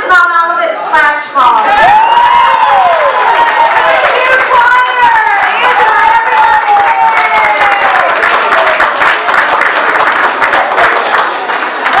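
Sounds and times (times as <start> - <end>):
audience clapping and cheering: 1.6 - 12.0
person whooping: 6.6 - 8.2.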